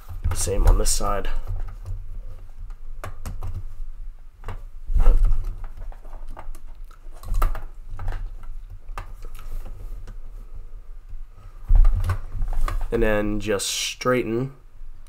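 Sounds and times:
dull thumps: 11.6s - 13.2s.

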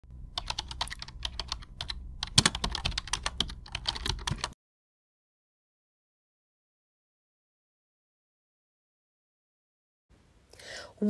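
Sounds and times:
keyboard typing clicks: 0.4s - 4.6s.

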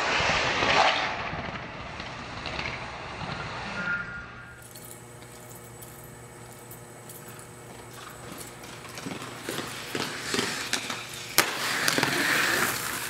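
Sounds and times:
faint outdoor hum: 1.6s - 13.0s
footsteps on concrete: 5.0s - 13.0s.

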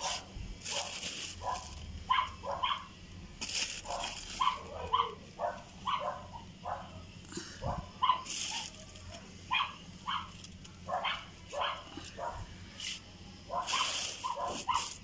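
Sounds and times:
rustling: 0.0s - 2.3s, 3.4s - 6.1s, 8.0s - 9.3s, 10.1s - 15.0s
dog yapping: 0.7s - 2.9s, 3.8s - 7.0s, 7.7s - 8.7s, 9.5s - 10.3s, 10.9s - 12.4s, 13.5s - 15.0s.

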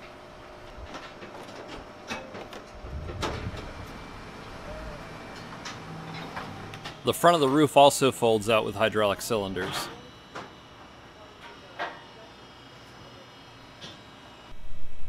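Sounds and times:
low machinery rumble: 2.6s - 13.6s.

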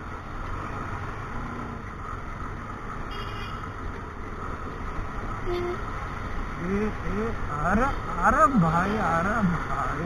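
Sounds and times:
road noise: 0.0s - 10.0s.

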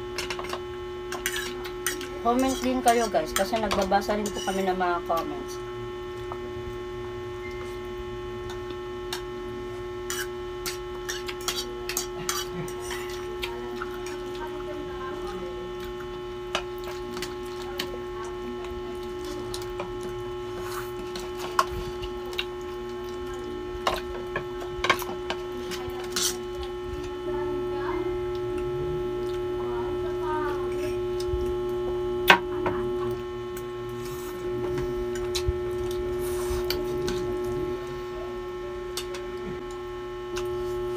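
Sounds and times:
electrical hum: 0.0s - 40.9s
forks scraping on plates: 0.2s - 4.8s, 10.0s - 14.3s, 24.8s - 26.5s.

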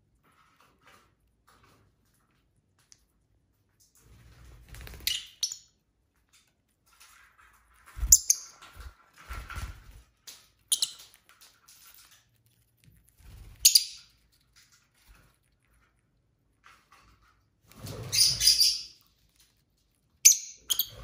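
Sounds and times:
wings flapping: 4.1s - 5.3s, 7.0s - 10.4s
rustles and bumps on perch: 6.3s - 19.9s
lovebirds chirping: 8.0s - 8.9s, 10.7s - 11.2s, 13.5s - 14.2s, 18.0s - 19.1s, 20.2s - 21.0s.

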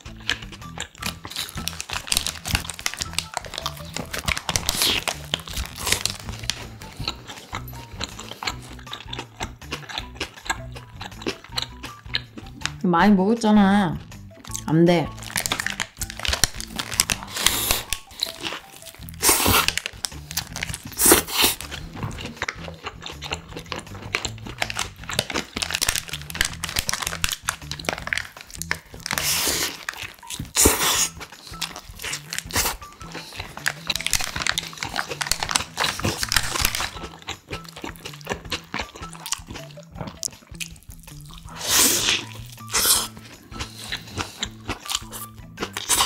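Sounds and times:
crunchy bites into toast: 0.0s - 12.5s, 14.5s - 46.0s
chewing: 0.0s - 12.8s, 14.4s - 46.0s
background music: 0.0s - 46.0s
paper wrapper crinkling: 1.0s - 7.5s, 15.1s - 22.6s, 23.7s - 37.2s.

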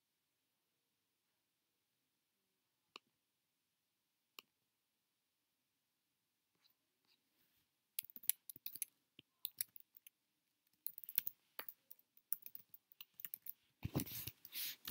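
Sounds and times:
keyboard typing: 8.0s - 10.1s, 10.7s - 14.9s.

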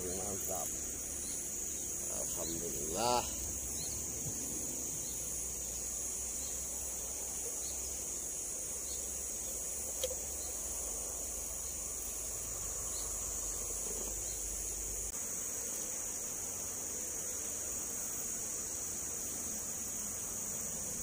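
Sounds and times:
insect chorus buzzing: 0.0s - 21.0s
small click: 10.0s - 10.2s.

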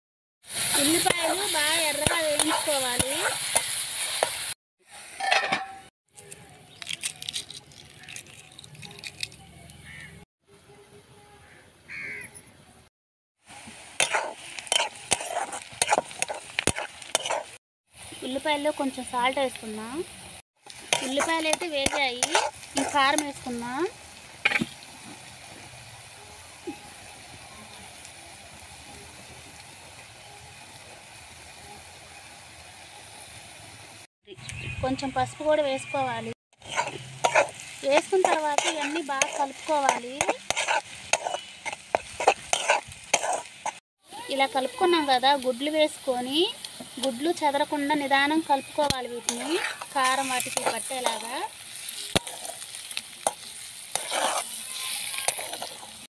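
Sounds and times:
onions sizzling in oil: 0.4s - 5.9s, 13.4s - 56.0s
eggshell crackling: 6.7s - 10.0s, 49.2s - 56.0s.

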